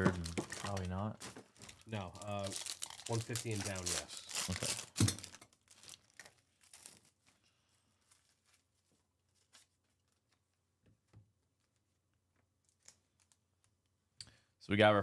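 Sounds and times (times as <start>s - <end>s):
plastic wrapper crinkling: 0.0s - 10.5s, 12.6s - 13.4s.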